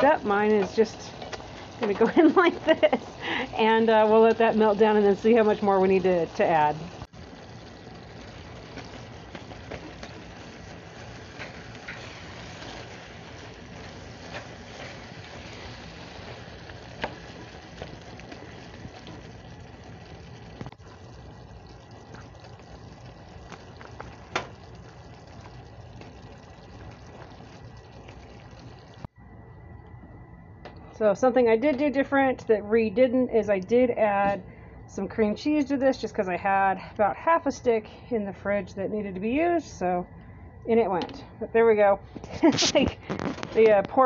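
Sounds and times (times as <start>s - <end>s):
meat sizzling in skillet: 0.0s - 29.1s
spatula scraping pan: 10.9s - 17.3s.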